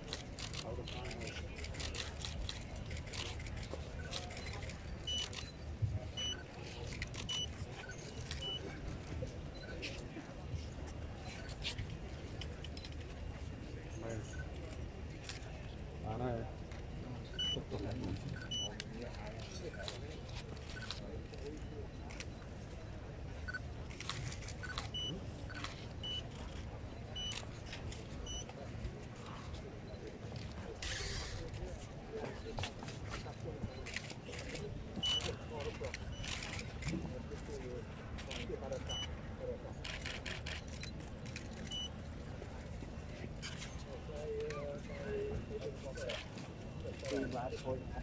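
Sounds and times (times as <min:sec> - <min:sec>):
murmur of outdoor crowd: 0:00.0 - 0:48.0
camera autofocus beeps: 0:03.0 - 0:05.6, 0:06.2 - 0:08.8, 0:09.5 - 0:10.0, 0:17.3 - 0:18.9, 0:19.5 - 0:22.8, 0:23.4 - 0:28.6, 0:32.2 - 0:37.0, 0:38.2 - 0:39.1, 0:39.8 - 0:42.0.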